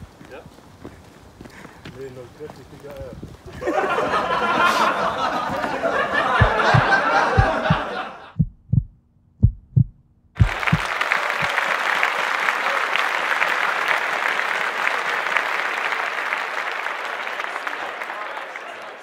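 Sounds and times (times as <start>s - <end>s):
heartbeat thumps: 6.2s - 10.8s
applause: 10.4s - 19.0s.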